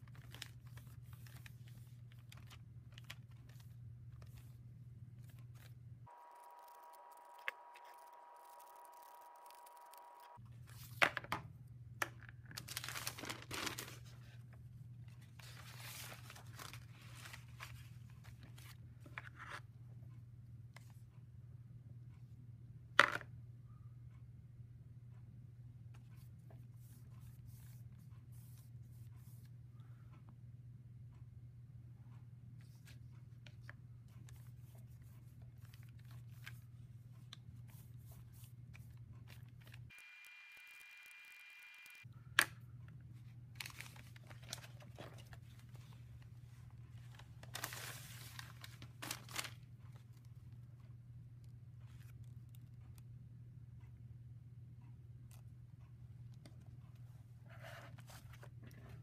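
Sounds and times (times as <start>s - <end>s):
paper rustling and crinkling: 0.0s - 4.6s, 12.5s - 14.4s, 15.2s - 19.6s, 43.6s - 46.1s, 46.9s - 50.3s
low steady hum: 0.0s - 59.0s.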